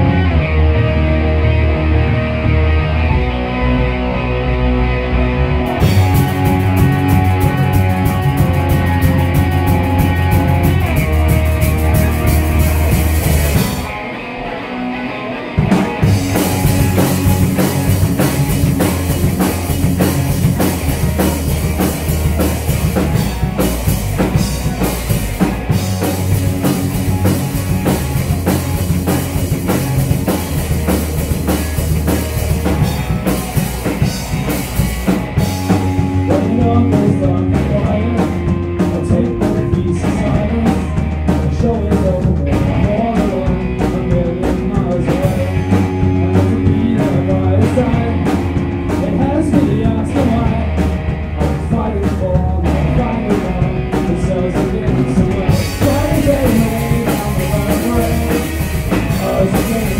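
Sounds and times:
driving drums: 0:00.0 - 0:59.9
electric bass: 0:00.0 - 0:59.9
electric guitar: 0:00.0 - 0:59.9.

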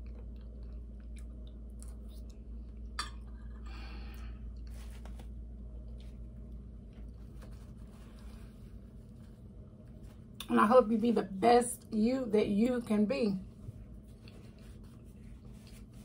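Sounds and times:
person chewing soft food: 0:00.0 - 0:04.8, 0:13.9 - 0:16.0.

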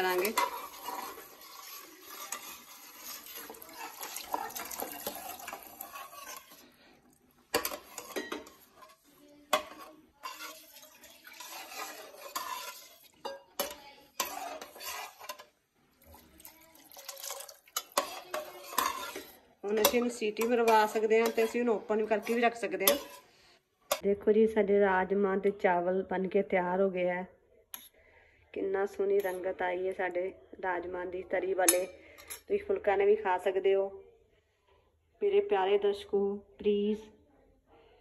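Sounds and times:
ladle scraping thick gravy: 0:00.0 - 0:24.0.

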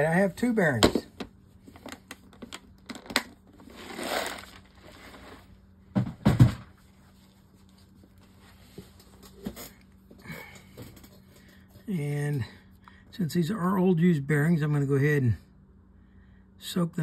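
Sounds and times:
rustling crinkle: 0:02.8 - 0:05.6, 0:06.8 - 0:09.7.

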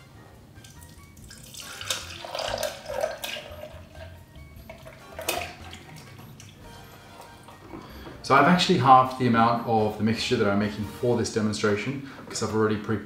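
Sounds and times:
thick liquid pouring into jug: 0:00.6 - 0:07.6.

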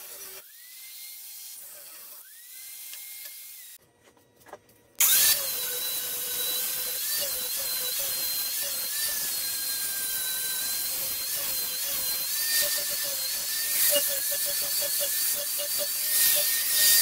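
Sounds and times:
angle grinder grinding steel: 0:00.0 - 0:00.8, 0:05.0 - 0:17.0.

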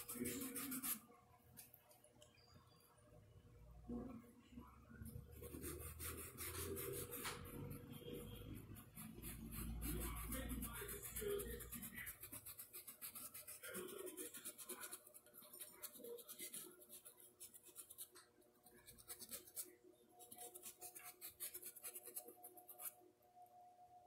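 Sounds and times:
paintbrush scratchy strokes: 0:00.0 - 0:01.0, 0:05.1 - 0:23.0.

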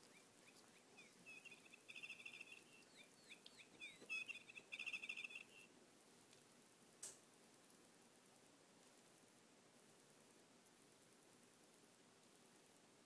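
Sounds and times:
high bird-like chirping: 0:00.0 - 0:05.7.

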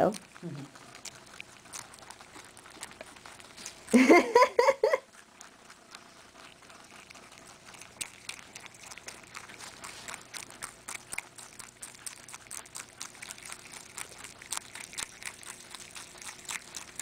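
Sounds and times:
rabbit munching: 0:00.0 - 0:17.0
person laughing: 0:03.9 - 0:05.1.

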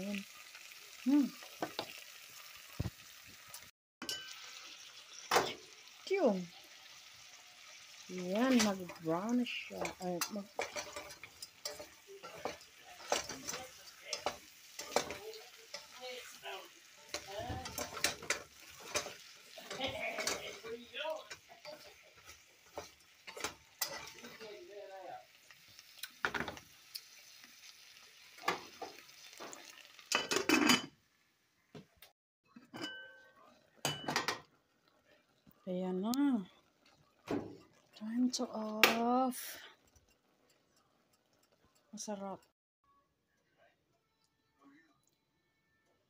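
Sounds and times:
light sizzle: 0:00.0 - 0:32.1, 0:33.1 - 0:42.6
spatula knocking and scraping pot: 0:09.7 - 0:16.4, 0:17.1 - 0:24.4.

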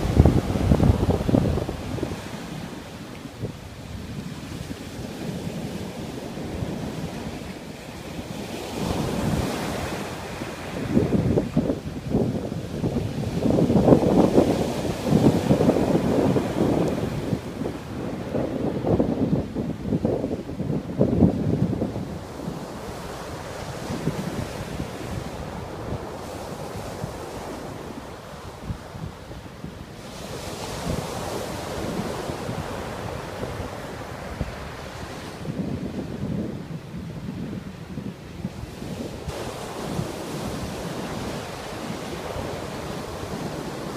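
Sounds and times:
surf breaking on beach: 0:00.0 - 0:20.2, 0:38.5 - 0:43.9
wind buffeting microphone: 0:00.0 - 0:43.9.

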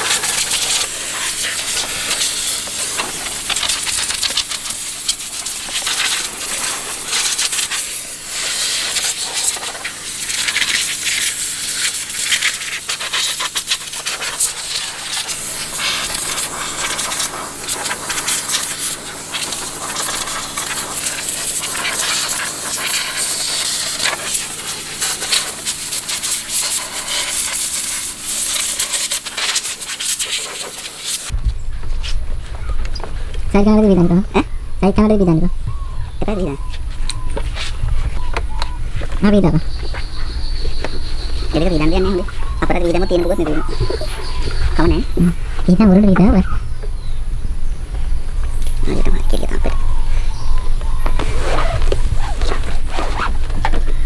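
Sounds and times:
pressure washer spray hissing: 0:00.0 - 0:31.4
low steady hum: 0:31.2 - 0:54.0.

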